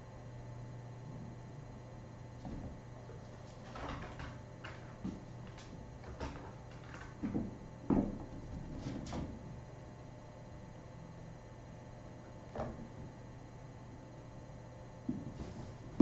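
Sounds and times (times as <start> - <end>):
steady low hum: 0.0 - 16.0.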